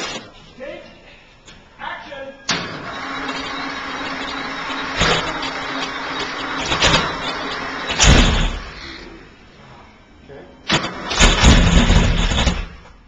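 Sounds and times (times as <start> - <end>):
engine cranking on starter: 2.5 - 9.0, 10.7 - 12.8
engine firing bursts: 2.5 - 9.1, 10.7 - 12.8.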